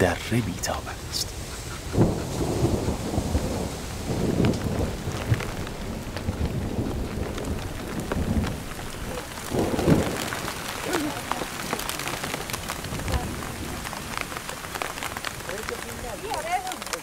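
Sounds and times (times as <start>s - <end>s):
rain falling: 0.0s - 17.0s
thunder rumbling: 0.0s - 17.0s.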